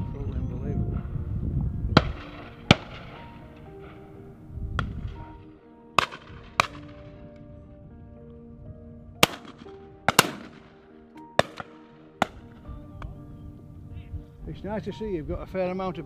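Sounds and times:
background music with held notes: 0.0 - 16.0
shotgun shots: 2.0 - 3.3, 6.0 - 7.0, 9.2 - 10.7, 11.4 - 12.5.

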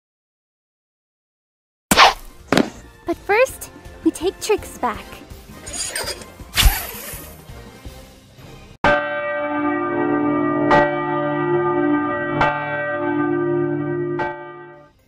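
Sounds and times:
church bell tolling: 8.9 - 14.9.

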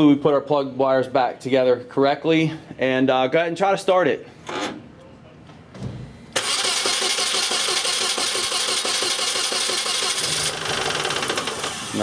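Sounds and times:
car engine cranking and idling: 6.4 - 12.0.

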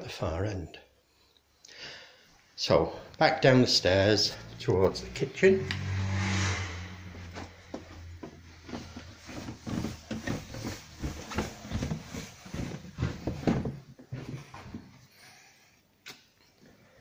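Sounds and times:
footsteps on carpeted stairs: 7.2 - 15.0.

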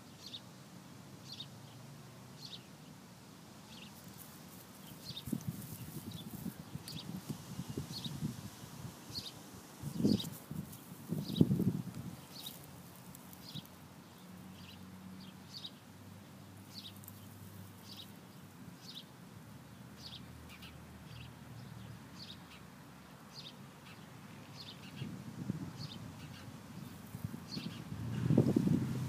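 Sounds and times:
wind rumble on microphone: 5.0 - 12.5, 25.0 - 29.0
bird chirping: 13.3 - 15.8, 16.7 - 19.1, 25.8 - 28.2.

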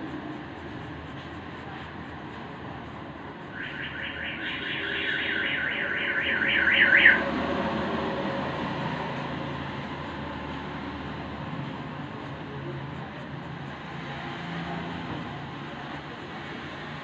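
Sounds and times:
high warbling alarm tone: 3.5 - 7.8
low hum: 3.5 - 8.0.

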